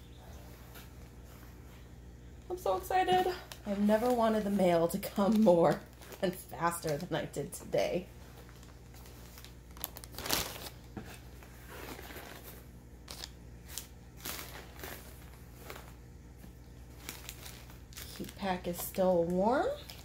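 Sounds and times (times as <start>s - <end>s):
plastic bag crinkling: 2.6s - 20.0s
paper packing fill rustling: 8.2s - 16.0s.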